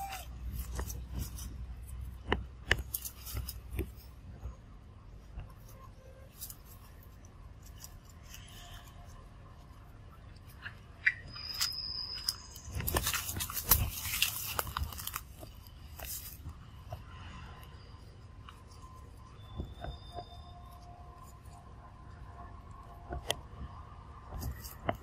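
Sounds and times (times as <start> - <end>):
dry leaves and twigs crackling: 0.0 - 25.0
high-pitched squeak: 11.0 - 13.0, 18.8 - 21.4.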